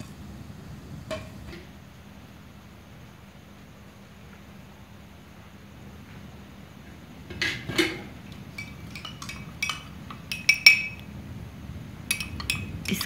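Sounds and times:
metal spoon clinking cookware: 0:08.5 - 0:11.0, 0:12.1 - 0:13.0.

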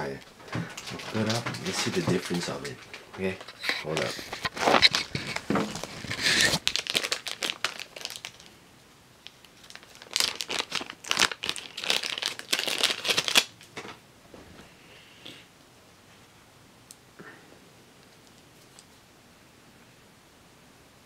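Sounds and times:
camera handling rustle against clothing: 0:03.4 - 0:06.6.

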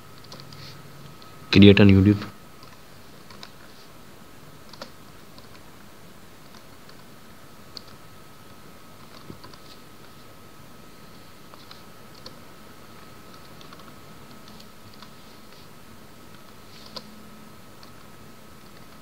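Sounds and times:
background hiss: 0:00.0 - 0:19.0
keyboard keys clicking: 0:04.6 - 0:05.6, 0:09.0 - 0:09.7.

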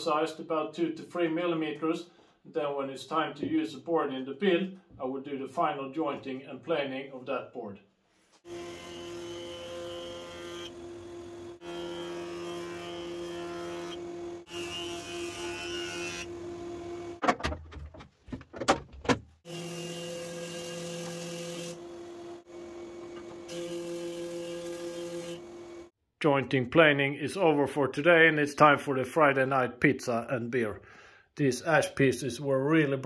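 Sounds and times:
jointer planer cutting wood: 0:08.5 - 0:17.2, 0:19.5 - 0:25.9.

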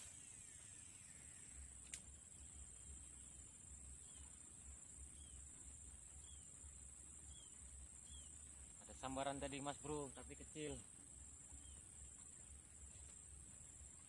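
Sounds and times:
high-pitched insect drone: 0:00.0 - 0:10.8
fishing reel spool whine: 0:00.0 - 0:14.0.

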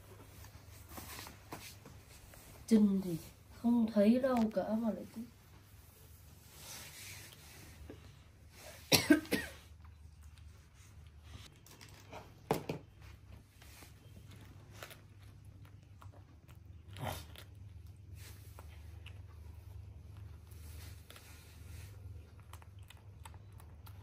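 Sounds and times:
person coughing: 0:08.9 - 0:09.7.

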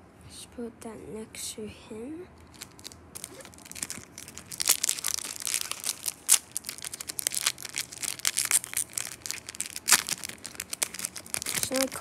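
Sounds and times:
foil wrapper crinkling: 0:02.4 - 0:12.0.

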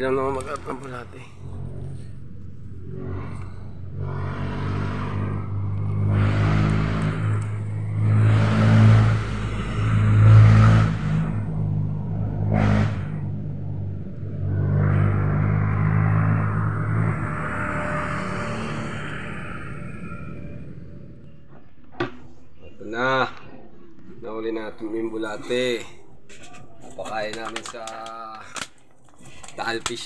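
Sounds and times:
engine humming low: 0:00.0 - 0:21.9.

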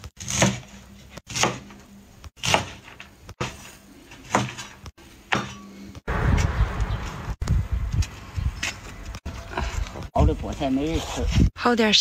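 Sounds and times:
cleaver chopping on wooden board: 0:00.2 - 0:01.8, 0:02.4 - 0:03.6, 0:04.2 - 0:04.7.

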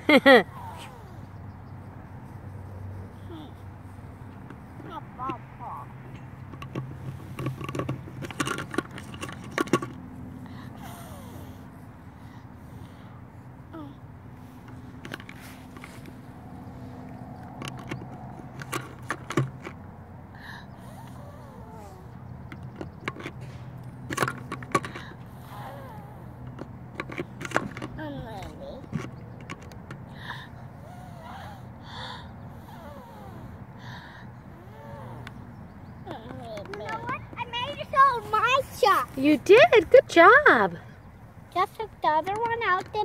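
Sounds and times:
plastic clicks and knocks: 0:06.4 - 0:10.0.

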